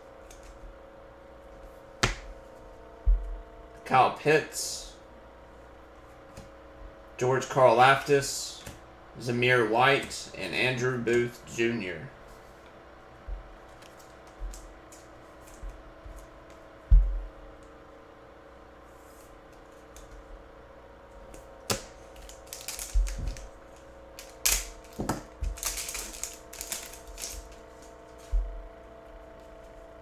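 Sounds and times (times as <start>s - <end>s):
faint steady hum: 0.0s - 30.0s
foil card pack crackling and tearing: 21.7s - 28.3s.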